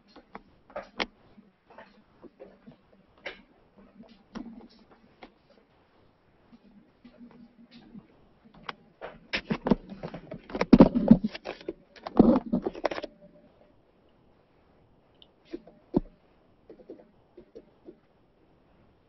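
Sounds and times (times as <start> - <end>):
rattling clatter of objects: 6.6 - 13.2.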